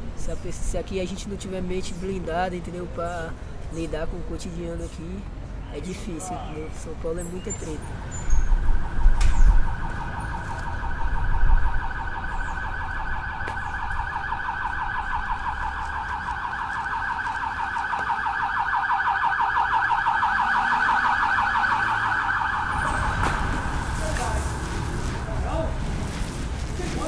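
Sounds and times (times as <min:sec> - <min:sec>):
siren warbling: 0:08.4 - 0:24.0.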